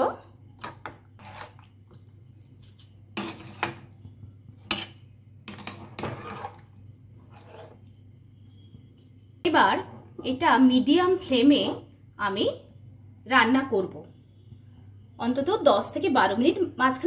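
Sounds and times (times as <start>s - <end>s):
metal spoon scraping steel pan: 1.2s - 1.6s, 3.2s - 3.8s, 4.6s - 6.7s, 7.3s - 7.8s.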